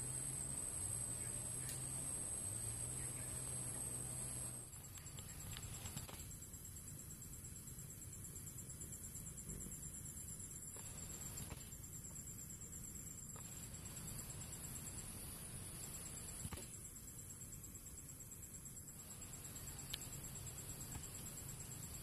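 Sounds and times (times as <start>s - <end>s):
insect trill: 0.0s - 22.0s
faint clicks: 19.9s - 20.1s.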